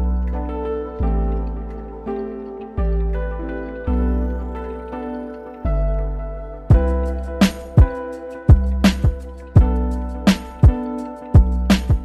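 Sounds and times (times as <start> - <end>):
instrumental music with drum beat: 6.7 - 12.0.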